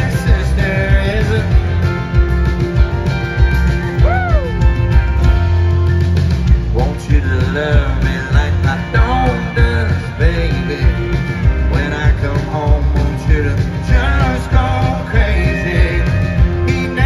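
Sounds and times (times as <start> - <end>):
man singing: 0.0 - 2.0, 6.6 - 17.0
acoustic guitar: 0.0 - 17.0
country band playing: 0.0 - 17.0
drums: 0.0 - 17.0
keyboard: 0.0 - 17.0.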